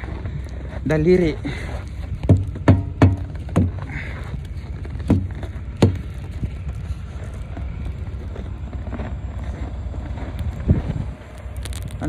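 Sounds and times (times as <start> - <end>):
diesel engine idling: 0.0 - 12.0
wind buffeting microphone: 9.8 - 12.0.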